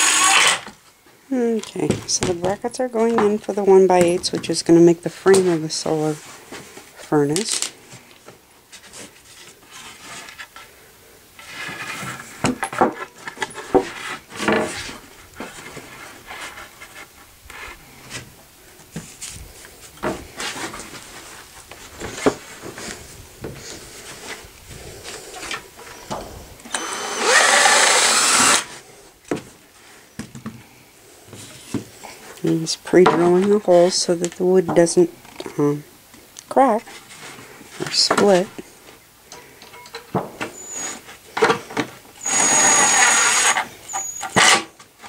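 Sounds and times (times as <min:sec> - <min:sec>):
cordless drill driving into wood: 0:00.0 - 0:00.8, 0:26.7 - 0:28.8, 0:42.2 - 0:44.7.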